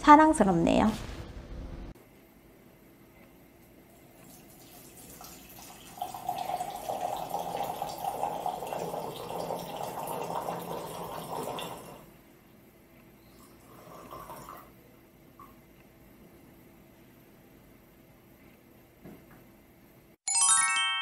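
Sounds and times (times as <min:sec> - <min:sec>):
water pouring into glass pitcher: 0:04.0 - 0:12.1, 0:13.4 - 0:14.7.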